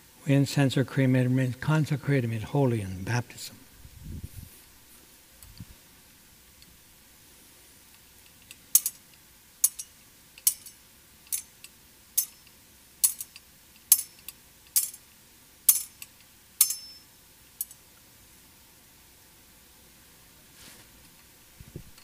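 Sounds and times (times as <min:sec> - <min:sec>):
thurible chains clinking: 0:09.6 - 0:11.5, 0:12.2 - 0:15.0, 0:15.7 - 0:17.0.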